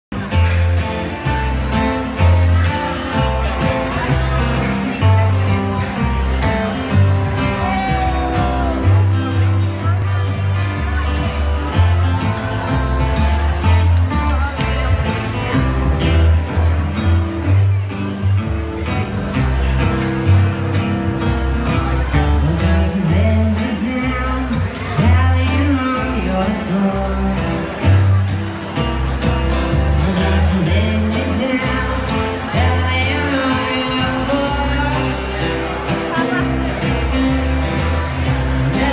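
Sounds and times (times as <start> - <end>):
acoustic guitars strumming: 0.1 - 38.9
double bass plucking: 0.1 - 38.9
person singing: 7.1 - 9.5, 22.0 - 28.1, 29.8 - 37.3, 38.1 - 38.9.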